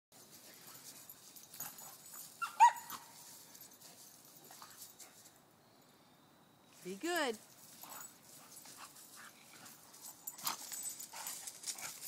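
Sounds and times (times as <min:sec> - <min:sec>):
dog yelp: 0:02.4 - 0:03.1
dogs scuffling: 0:07.0 - 0:12.0.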